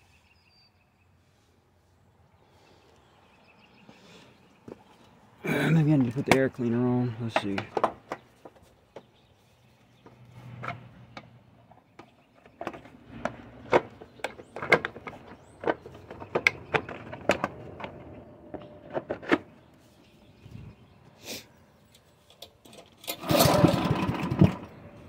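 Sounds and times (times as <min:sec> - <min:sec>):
engine parts clicking and knocking: 0:05.8 - 0:09.3, 0:09.9 - 0:19.7, 0:21.9 - 0:25.0.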